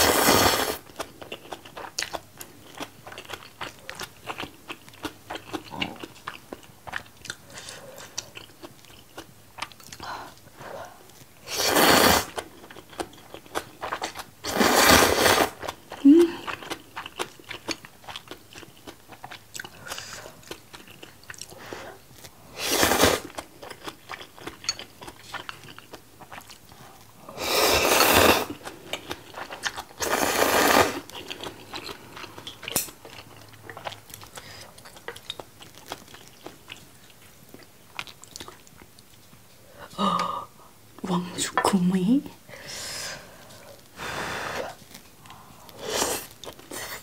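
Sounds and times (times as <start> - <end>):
slurping noodles: 0.0 - 0.8, 11.4 - 12.4, 14.4 - 15.6, 22.5 - 23.4, 27.3 - 28.6, 30.0 - 31.1
wet chewing: 0.3 - 11.4, 12.2 - 22.4, 23.2 - 27.2, 28.0 - 39.4, 44.7 - 47.0.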